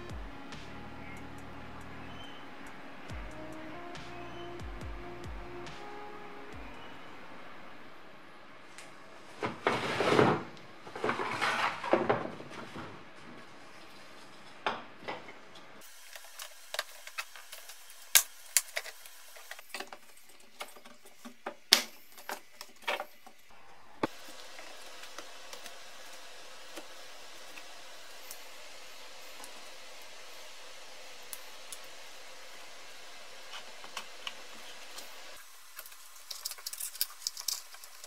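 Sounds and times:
plastic parts rustling and scraping: 9.2s - 25.7s, 33.4s - 38.0s.

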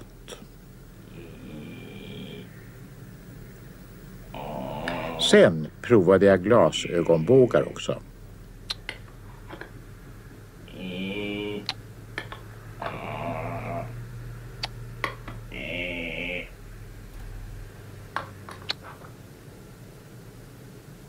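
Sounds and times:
buzzing nasal cartoon tones: 0.2s - 2.6s, 4.2s - 5.5s, 10.6s - 11.8s, 12.8s - 14.0s, 15.4s - 16.6s.

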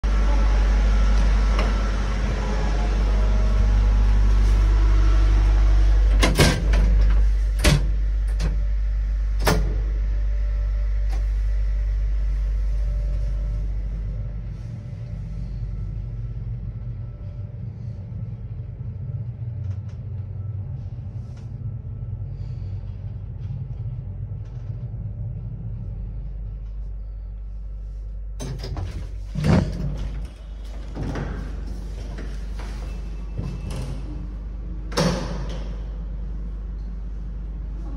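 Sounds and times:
elevator doors clunking: 0.0s - 10.0s, 28.4s - 36.4s
elevator humming: 0.0s - 37.9s.

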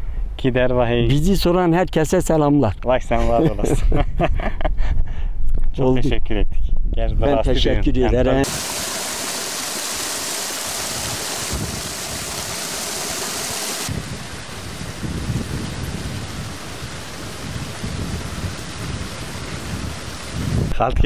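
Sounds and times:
steady hiss: 8.4s - 21.0s
wind rumble on microphone: 10.8s - 12.6s, 13.8s - 21.0s.

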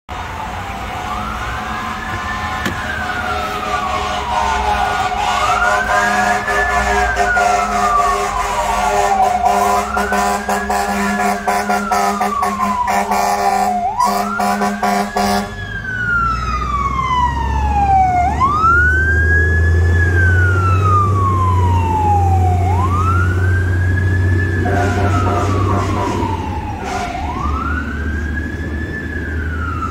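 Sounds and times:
fire truck siren wailing: 0.1s - 29.9s
truck engine rumble: 0.1s - 29.9s
blaring horn: 0.8s - 15.6s, 24.6s - 27.7s.

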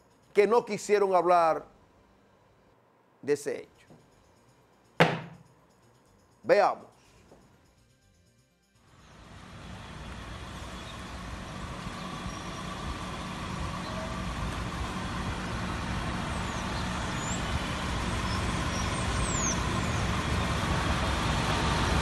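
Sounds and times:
steady rumble and hiss: 8.9s - 22.0s.

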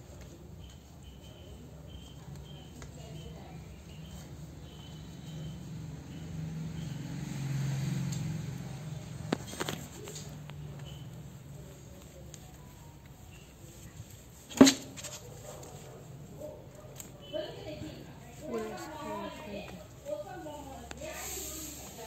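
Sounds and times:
insects chirping: 1.0s - 7.4s.

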